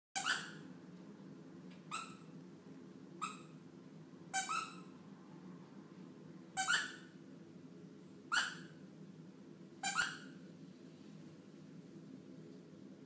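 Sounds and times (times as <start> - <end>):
dog yelping: 0.2 - 0.6, 1.9 - 2.3, 4.4 - 4.9, 6.6 - 7.1, 8.3 - 8.8, 9.8 - 10.4.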